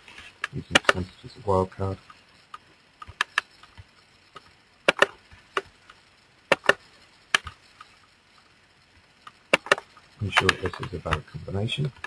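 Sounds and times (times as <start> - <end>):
computer mouse clicking: 0.4 - 1.1, 2.1 - 8.0, 9.3 - 11.3.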